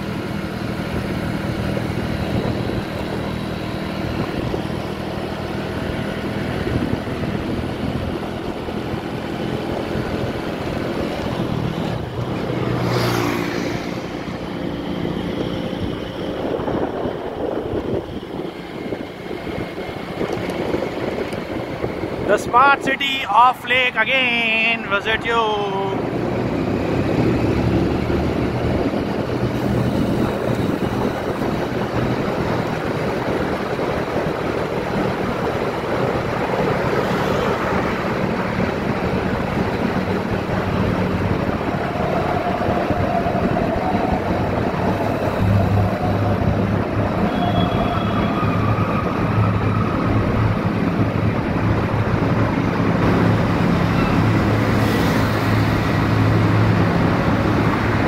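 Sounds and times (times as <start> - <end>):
road and wind noise: 0.0 - 58.0
vehicle engine hum: 0.0 - 58.0.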